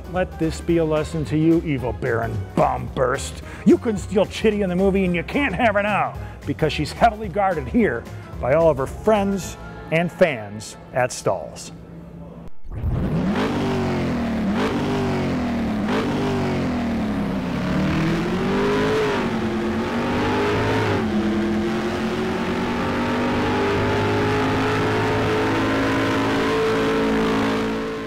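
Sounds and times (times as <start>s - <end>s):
car engine accelerating: 12.6s - 28.0s.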